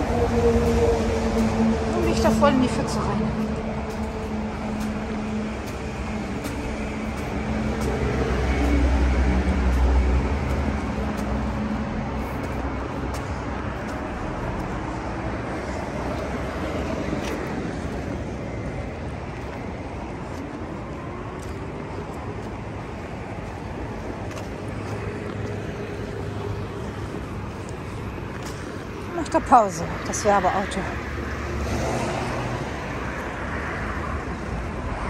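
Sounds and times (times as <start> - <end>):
vehicle engine passing: 0.0 - 18.4
traffic noise: 0.0 - 35.0
vehicle engine approaching: 0.0 - 35.0.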